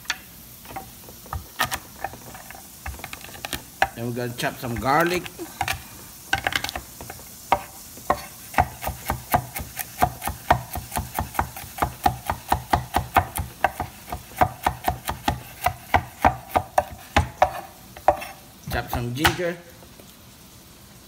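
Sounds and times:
knife chopping on wooden board: 0.7 - 4.0, 6.4 - 19.4.

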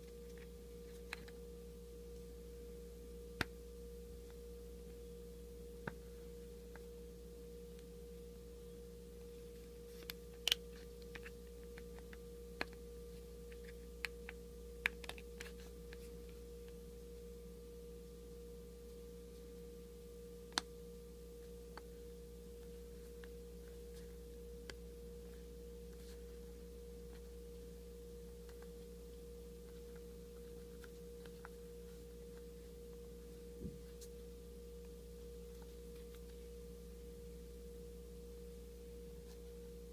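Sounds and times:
steady hum: 0.0 - 39.9.

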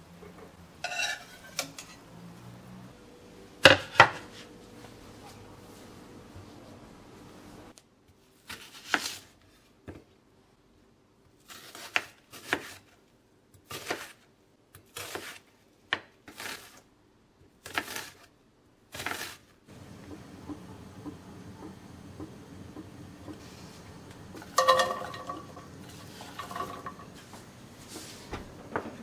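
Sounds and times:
knife cutting onion on board: 8.4 - 9.3, 11.4 - 12.9, 13.6 - 16.8, 17.6 - 18.3, 18.9 - 19.5.

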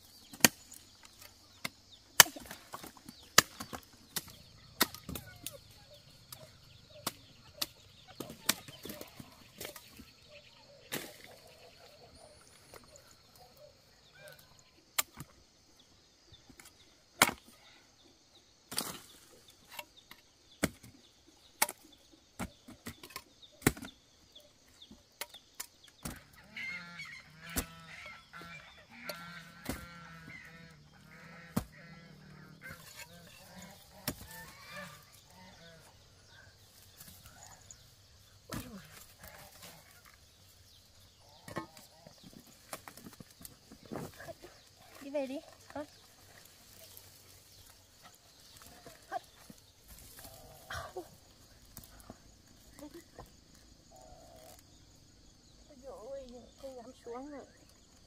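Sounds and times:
machete chopping roots: 0.3 - 5.6, 32.6 - 34.8
repeated animal calls: 1.5 - 14.8, 26.0 - 57.8.

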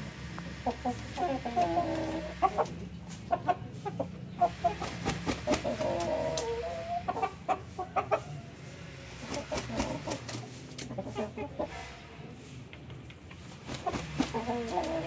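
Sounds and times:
rooster clucking: 0.2 - 15.0
wings flapping: 4.6 - 6.5, 9.2 - 10.6, 13.1 - 15.0.

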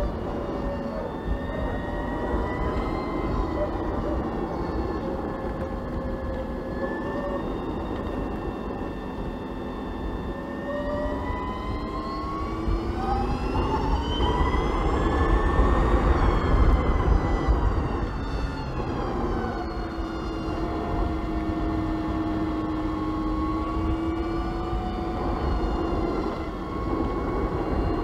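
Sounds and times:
electric scooter motor whining: 0.0 - 28.0
road rumble: 0.0 - 28.0
wind noise: 0.0 - 28.0.

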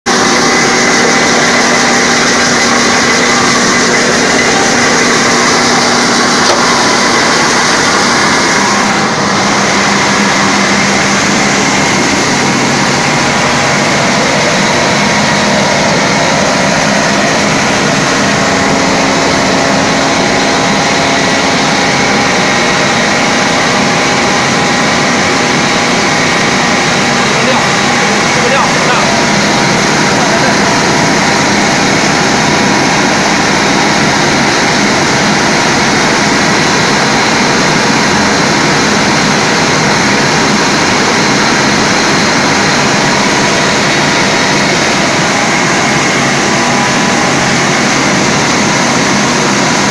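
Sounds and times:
rice polishing machine drone: 0.1 - 49.9.

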